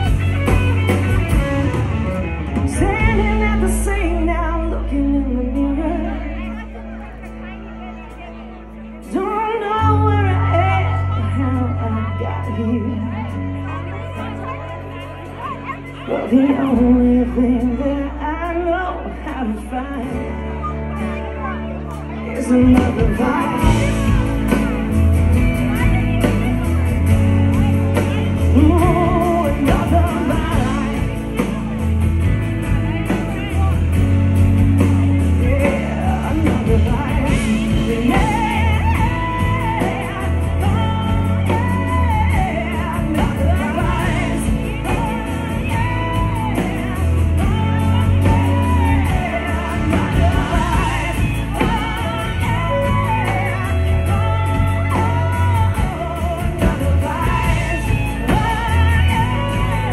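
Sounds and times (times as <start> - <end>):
drums playing: 0.0 - 3.9, 22.5 - 59.9
acoustic guitar: 0.0 - 59.9
woman singing: 2.6 - 7.2, 9.0 - 14.6, 15.4 - 33.8, 34.4 - 59.9.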